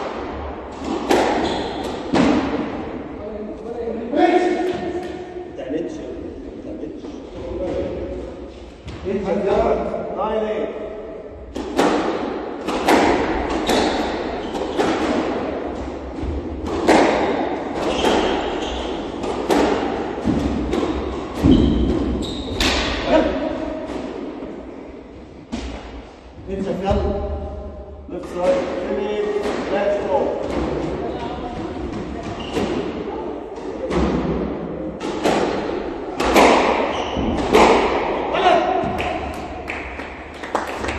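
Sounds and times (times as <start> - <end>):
racquets striking squash ball: 0.0 - 3.2, 4.3 - 5.6, 11.2 - 40.9.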